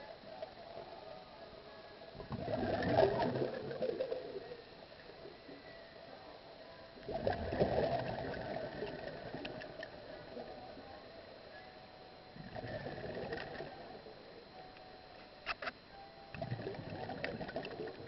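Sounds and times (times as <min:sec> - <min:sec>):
faint steady hum: 0:00.0 - 0:18.0
underwater exhaled bubbles: 0:02.2 - 0:05.3, 0:07.0 - 0:10.6, 0:12.4 - 0:14.3, 0:16.4 - 0:18.0.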